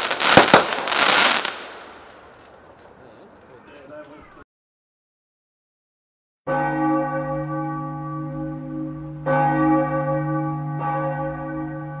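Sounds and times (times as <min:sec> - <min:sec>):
church bell tolling: 0:06.5 - 0:12.0.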